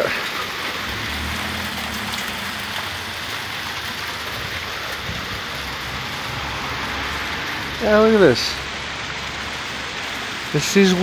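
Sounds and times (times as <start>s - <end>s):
low rumble: 0.6s - 7.8s.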